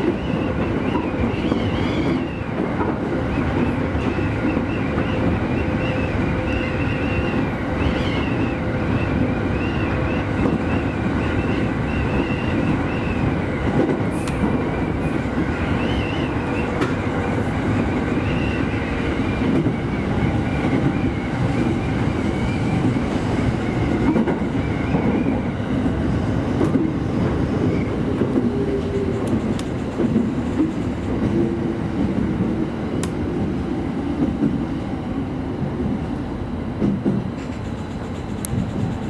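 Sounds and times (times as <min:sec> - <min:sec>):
train wheels rumbling on rails: 0:00.0 - 0:39.0.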